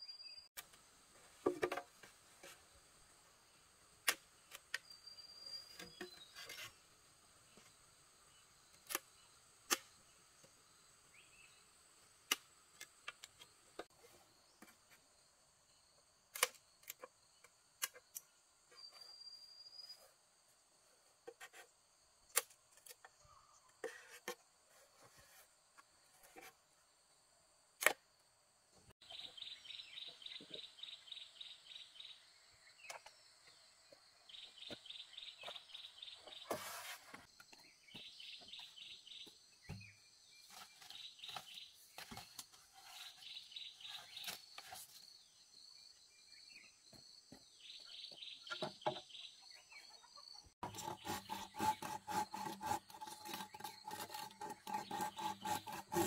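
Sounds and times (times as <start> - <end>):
rasping rubbing sound: 36.3 - 37.3, 50.6 - 56.0.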